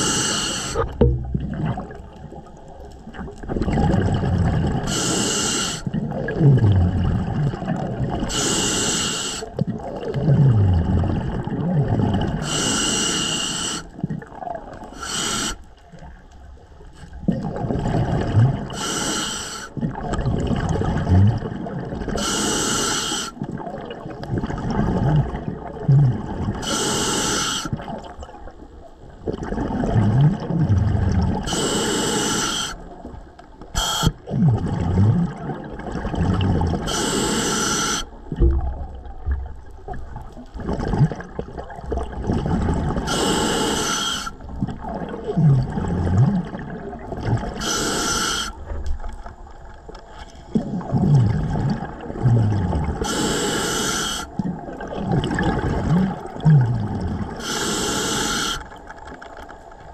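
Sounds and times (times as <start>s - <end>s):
regulator hissing inhale: 0.0s - 0.9s, 4.8s - 5.9s, 8.3s - 9.6s, 12.4s - 13.9s, 14.9s - 15.7s, 18.7s - 19.8s, 22.2s - 23.4s, 26.6s - 27.7s, 31.4s - 32.8s, 33.8s - 34.2s, 36.8s - 38.2s, 43.0s - 44.4s, 47.5s - 48.7s, 53.0s - 54.4s, 57.4s - 58.8s
bubbling exhale: 0.0s - 2.1s, 3.6s - 14.0s, 17.3s - 23.7s, 29.3s - 32.9s, 33.8s - 39.4s, 40.1s - 48.8s, 50.1s - 58.8s.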